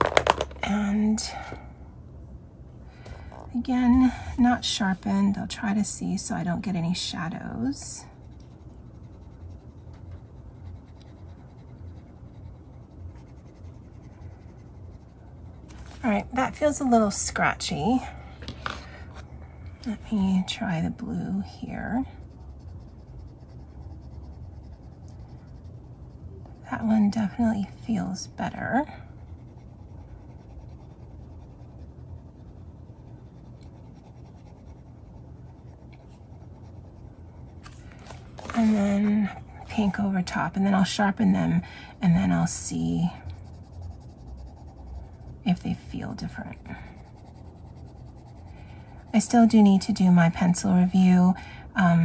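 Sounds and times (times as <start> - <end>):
pencil scratching on paper: 3.8 - 18.0, 19.8 - 50.9.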